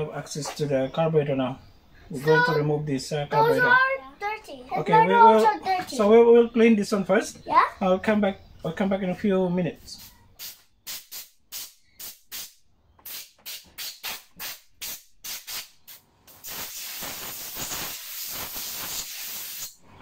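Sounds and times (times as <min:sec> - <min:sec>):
compressed air blow gun puffs: 0:10.0 - 0:19.8
hissing air blast: 0:10.0 - 0:19.8.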